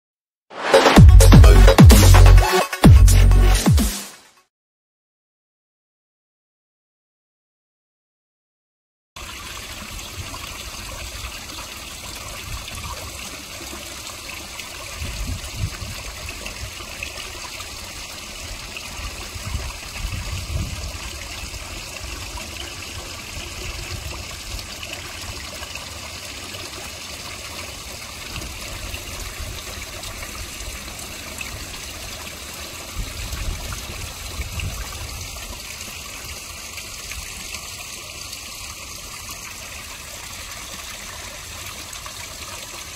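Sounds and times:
water trickling and splashing: 9.2 - 42.9.

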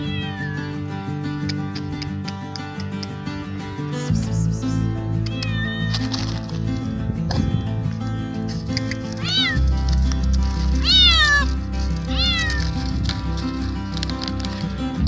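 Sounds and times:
cat meowing loudly: 0.0 - 0.7, 5.3 - 6.1, 9.2 - 9.7, 10.8 - 12.8
background music: 0.0 - 15.0.

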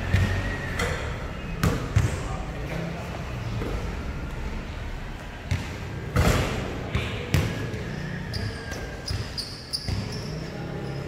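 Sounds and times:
basketball bouncing on concrete: 5.5 - 7.6.

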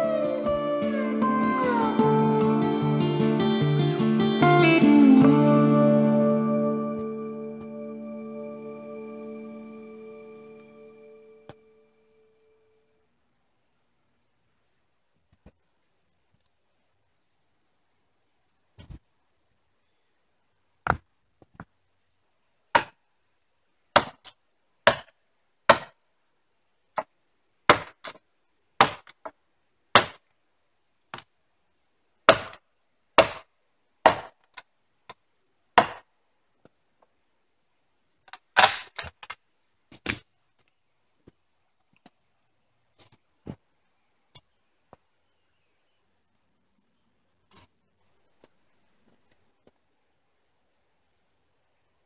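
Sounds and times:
machete chopping wood: 22.8 - 23.0, 24.0 - 24.3, 24.9 - 25.1, 25.7 - 26.0, 27.7 - 28.2, 28.8 - 29.2, 30.0 - 30.2, 32.3 - 32.6, 33.2 - 34.4, 35.8 - 36.0.

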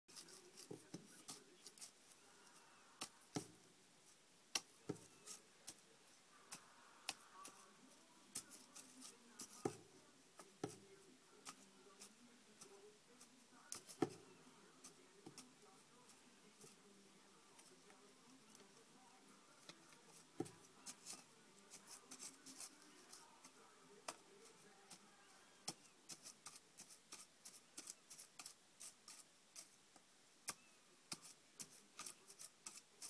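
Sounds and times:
rabbit rummaging in bedding: 4.8 - 25.6.

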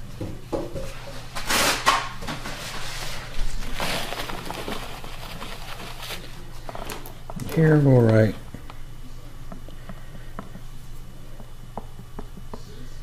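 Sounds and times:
plastic container scuffing and rustling: 2.2 - 7.0.

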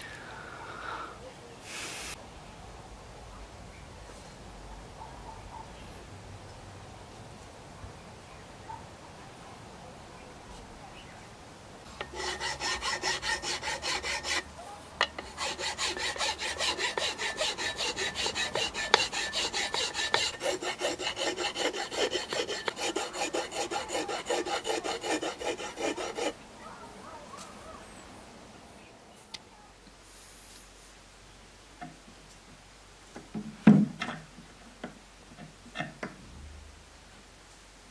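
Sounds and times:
file scraping wood: 11.9 - 26.4.

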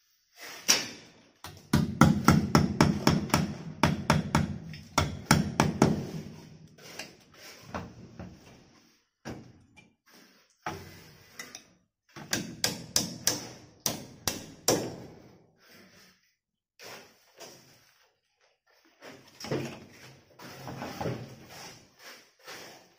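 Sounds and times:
hammer striking: 12.2 - 15.0.

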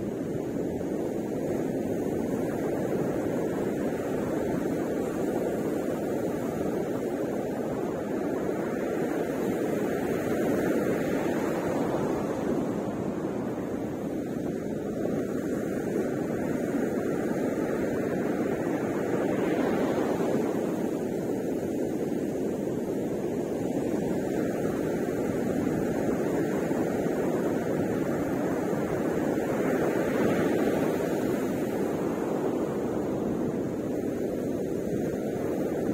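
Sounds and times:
ocean surf breaking: 2.4 - 35.9.

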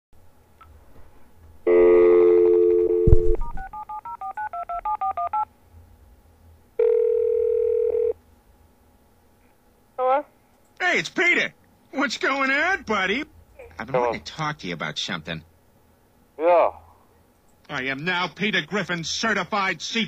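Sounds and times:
telephone dial tone: 1.7 - 5.4, 6.8 - 8.1
telephone ringing tone: 1.7 - 5.5, 6.8 - 8.2.

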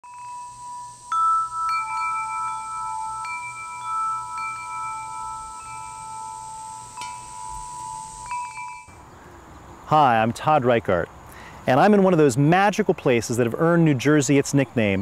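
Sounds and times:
wind chimes ringing: 0.0 - 9.0.

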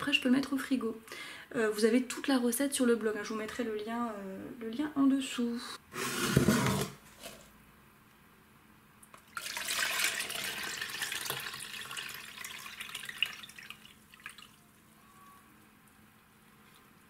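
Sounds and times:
liquid pouring and splashing: 9.2 - 14.8.

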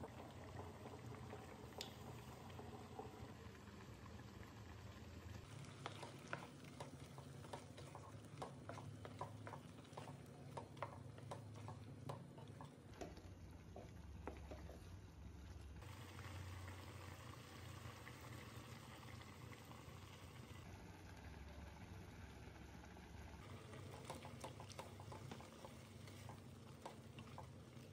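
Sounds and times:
faint bubbling: 0.0 - 27.9
spatula stirring thick curry: 5.4 - 15.0.

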